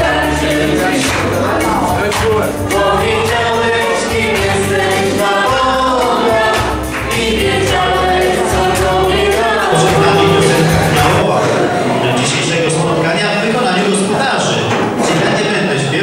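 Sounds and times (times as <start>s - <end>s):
group singing: 0.0s - 12.1s
amplified instrumental accompaniment: 9.6s - 11.9s.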